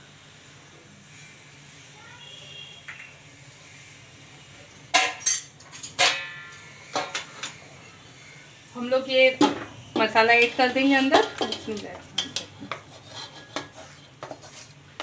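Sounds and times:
metal cookware clinking: 4.9 - 7.5, 10.0 - 13.8.

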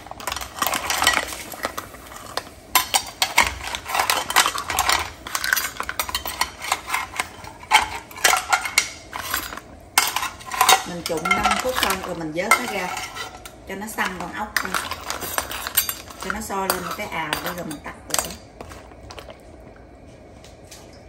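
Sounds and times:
metal skimmer clinking against bowl: 7.7 - 18.5.

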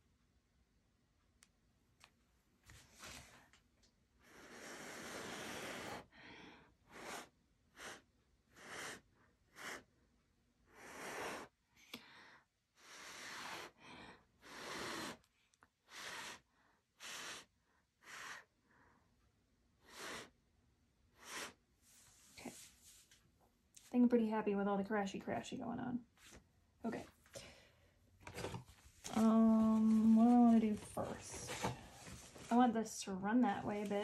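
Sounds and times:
person blowing puffs of breath: 10.7 - 15.2, 15.8 - 18.5, 19.8 - 20.4, 21.2 - 21.6.

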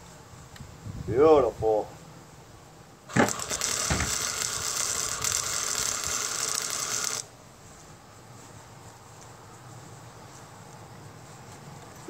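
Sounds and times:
arc welder crackling and sizzling: 3.1 - 7.4.

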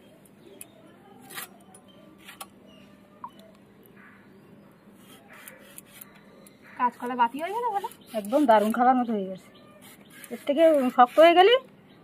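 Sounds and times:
plantain skin scraping on blade: 7.4 - 8.9, 9.8 - 11.5.

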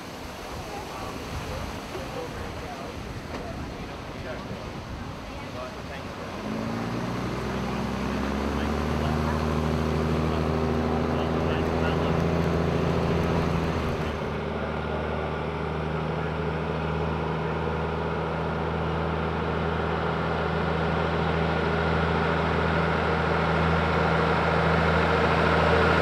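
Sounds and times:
road and air noise: 0.0 - 26.0
tram engine drone: 6.1 - 26.0.

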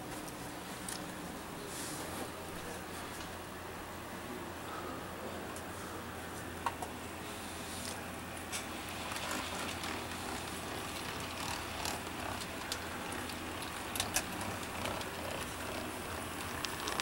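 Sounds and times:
faint steady hum: 0.0 - 17.0
model train wheels clicking: 9.0 - 17.0.

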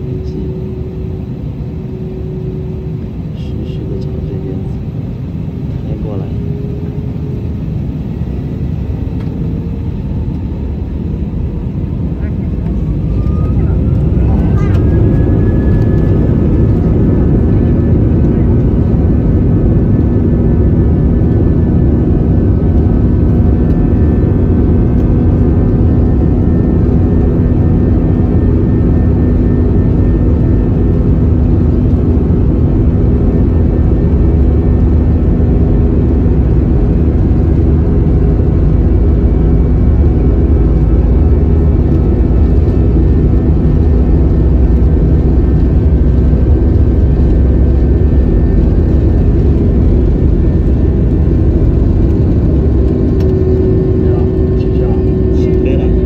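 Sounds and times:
jet engines rumbling in cabin: 0.0 - 56.0.

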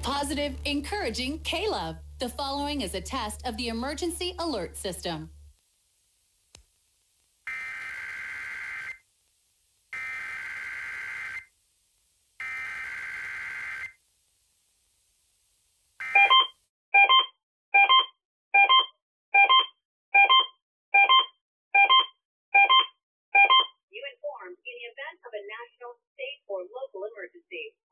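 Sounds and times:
buzzy digital data tones: 7.5 - 9.0, 10.0 - 11.5, 12.4 - 14.0
electronic alert beeps: 16.0 - 23.8.

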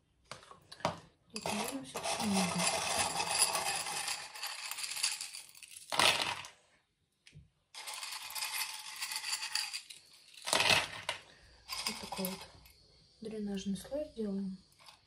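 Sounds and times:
pebbles rattling in glass jar: 1.4 - 6.5, 7.8 - 12.5.

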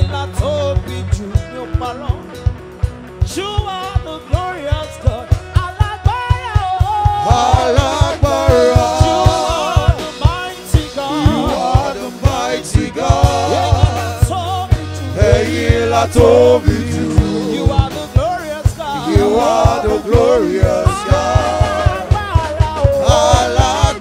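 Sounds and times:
bass: 0.0 - 24.0
fast drum beat: 0.0 - 24.0
voices singing: 6.8 - 24.0.

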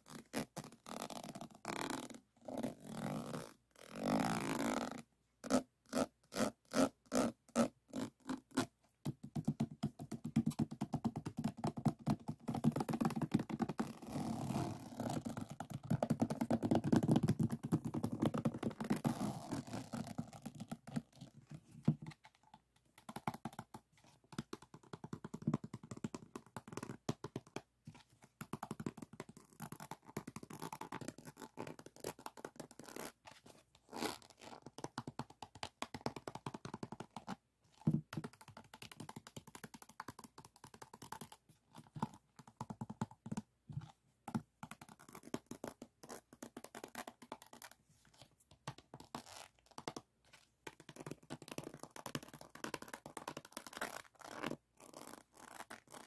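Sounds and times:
fingers scratching and tapping resin: 8.0 - 33.4.

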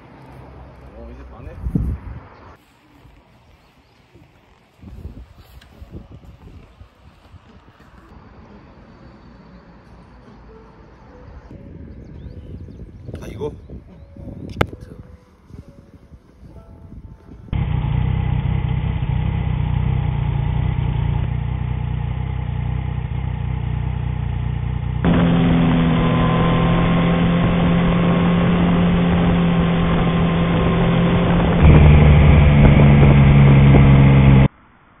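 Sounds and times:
motorcycle engine running: 17.5 - 34.5.

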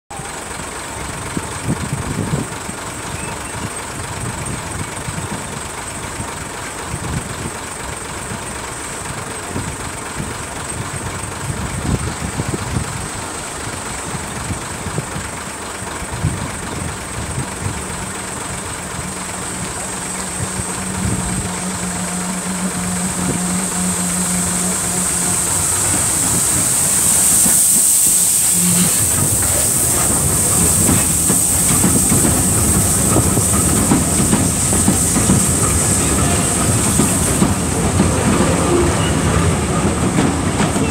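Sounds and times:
steam locomotive hiss: 0.1 - 40.9
train wheels clicking over rail joints: 0.3 - 40.9
low engine hum: 9.6 - 40.9.

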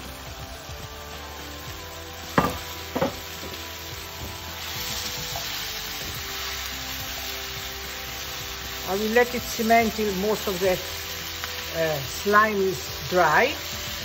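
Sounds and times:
okra sizzling in hot oil: 0.0 - 14.0.

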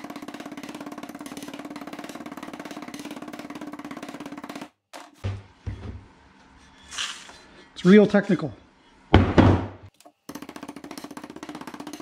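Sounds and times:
fast hammer strikes: 0.0 - 4.8.

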